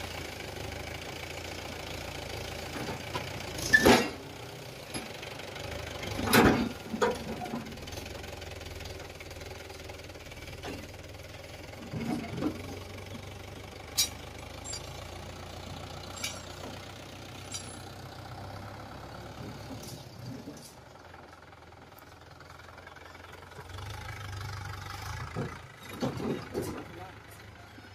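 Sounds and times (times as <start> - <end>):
tractor diesel engine running: 0.0 - 27.9
knocks and clanks: 6.2 - 7.7, 25.2 - 27.4.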